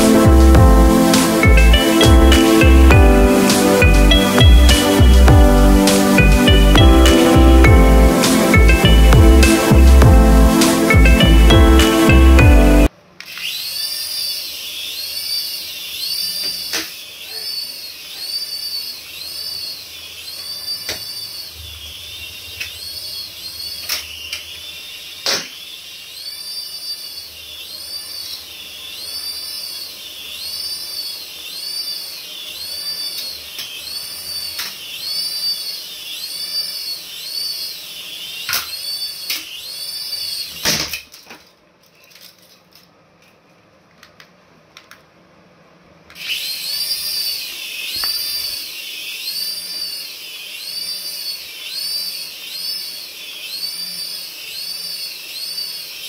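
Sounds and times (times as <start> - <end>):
toy siren warble: 26.1 - 40.6, 46.2 - 56.0.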